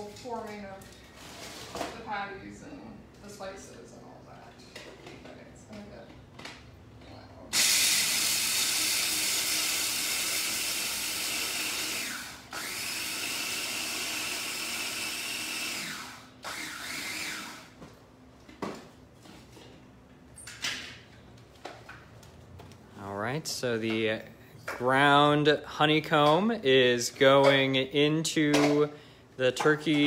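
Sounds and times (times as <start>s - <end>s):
electric food chopper grinding: 7.5s - 17.8s.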